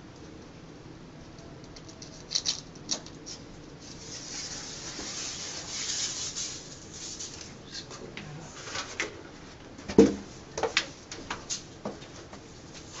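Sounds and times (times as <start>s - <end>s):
plastic film scratchy rustle: 1.9s - 9.0s.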